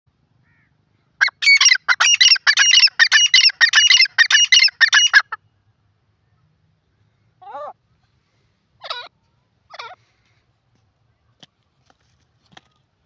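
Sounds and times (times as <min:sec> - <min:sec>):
bird calling rapidly: 0:00.4 - 0:05.4.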